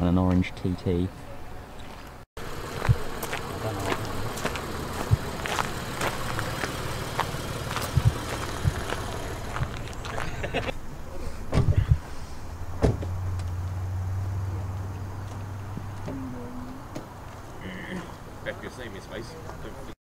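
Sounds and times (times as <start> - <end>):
car engine idling: 2.4 - 17.4
loud thumps: 7.8 - 9.9.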